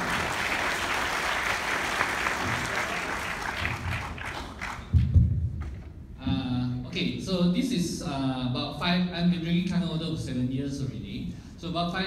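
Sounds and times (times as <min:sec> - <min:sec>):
audience applauding: 0:00.0 - 0:05.0
low thumps: 0:04.9 - 0:06.7.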